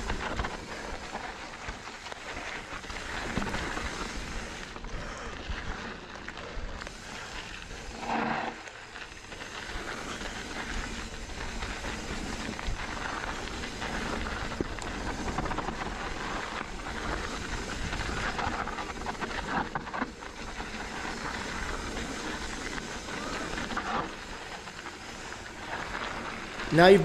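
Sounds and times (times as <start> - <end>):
bike tyres rolling over dirt: 0.0 - 27.0
bike knocking and rattling: 9.1 - 26.3.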